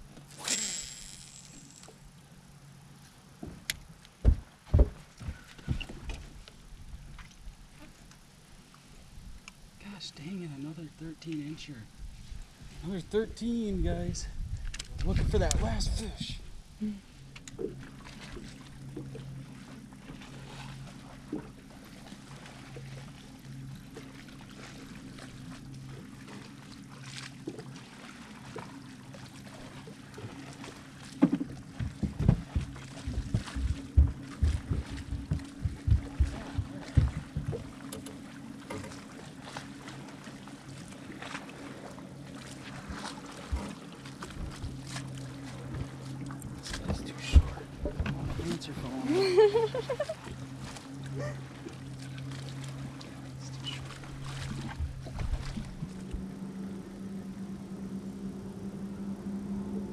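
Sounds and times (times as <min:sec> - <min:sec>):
steady low hum: 0:00.0 - 0:59.9
water lapping against boat hull: 0:00.0 - 0:59.9
soft knocks: 0:04.2 - 0:06.2, 0:31.2 - 0:37.7.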